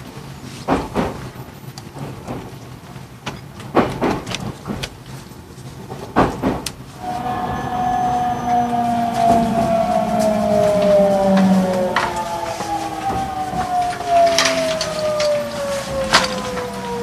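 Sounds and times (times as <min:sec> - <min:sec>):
train wheels clunking over rail joints: 0:00.6 - 0:06.7
electric train inverter whine: 0:07.0 - 0:17.0.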